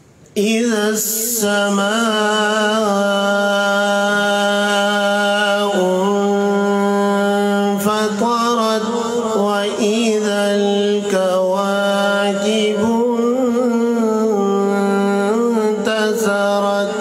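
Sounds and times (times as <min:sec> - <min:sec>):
man reciting melodically: 0:00.3 - 0:17.0.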